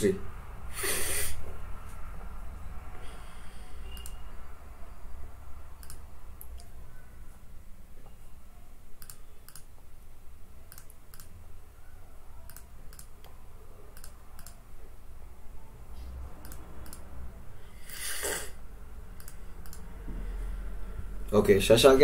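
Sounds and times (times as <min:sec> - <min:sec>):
computer control clicks: 0:05.8 - 0:06.7, 0:09.0 - 0:09.7, 0:12.5 - 0:14.6, 0:16.4 - 0:17.1, 0:19.2 - 0:19.9.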